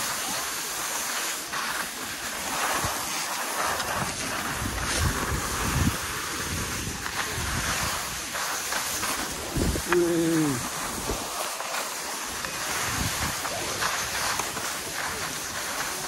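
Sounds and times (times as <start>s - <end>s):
skis scraping over snow: 0.0s - 16.0s
wind buffeting microphone: 3.9s - 8.4s, 9.2s - 11.3s, 12.7s - 14.2s.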